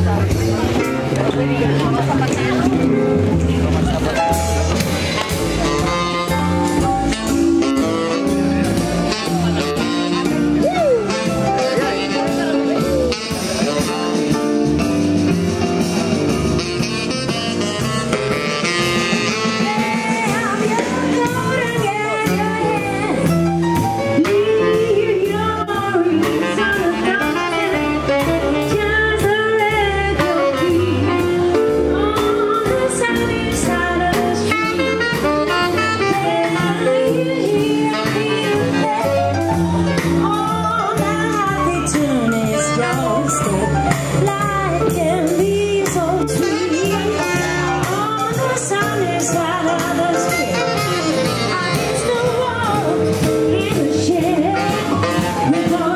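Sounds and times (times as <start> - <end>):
jazz band playing: 0.0 - 55.9
woman singing: 19.2 - 23.4, 24.2 - 55.9.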